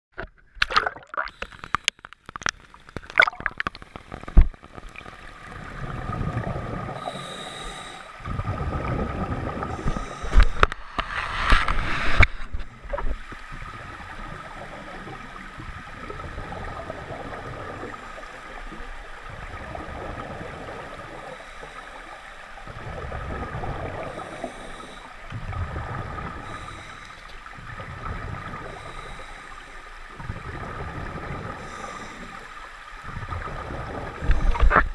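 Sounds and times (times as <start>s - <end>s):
bubbles gurgling: 0.6s - 1.4s, 2.8s - 7.3s, 8.2s - 21.5s, 22.6s - 29.2s, 30.1s - 32.0s, 33.0s - 34.9s
water hiss: 5.5s - 34.9s
diver breathing underwater: 6.0s - 13.0s, 19.6s - 34.9s.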